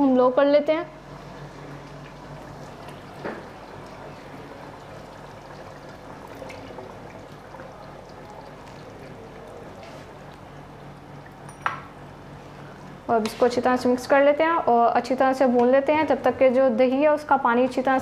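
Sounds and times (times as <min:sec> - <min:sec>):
curry simmering in pot: 0:01.0 - 0:13.1
yogurt pouring: 0:01.2 - 0:11.5.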